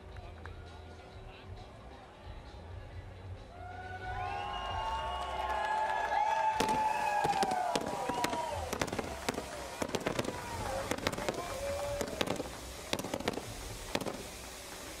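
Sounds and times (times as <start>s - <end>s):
people shouting and cheering: 0.1s - 13.2s
fireworks popping and crackling: 6.4s - 15.0s.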